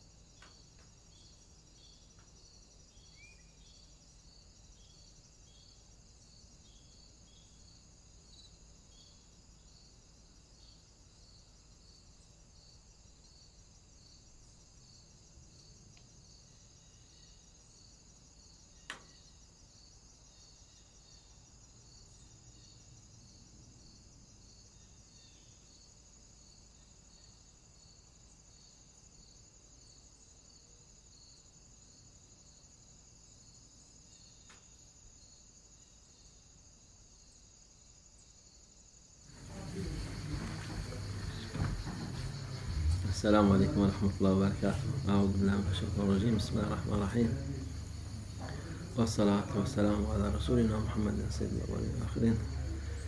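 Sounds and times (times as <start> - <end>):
insect chirping: 0.0 - 53.0
continuous high buzz: 36.6 - 53.0.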